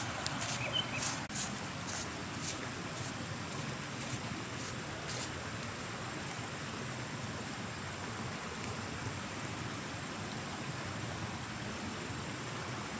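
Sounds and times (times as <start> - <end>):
river rushing: 0.0 - 12.9.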